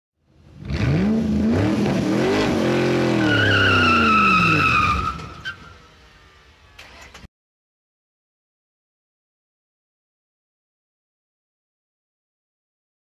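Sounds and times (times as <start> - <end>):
car engine revving: 0.4 - 7.0
tyre screech: 3.0 - 6.0.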